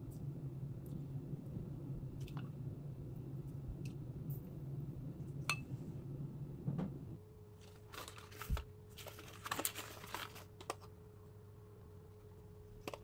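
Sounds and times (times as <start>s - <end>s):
low hum: 0.0s - 8.7s
plastic and cardboard crinkling: 7.6s - 10.9s.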